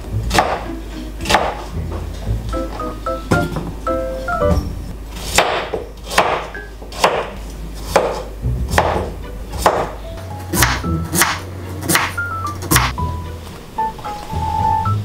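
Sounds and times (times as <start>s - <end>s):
knife chopping on cutting board: 0.3s - 1.8s, 4.5s - 13.0s.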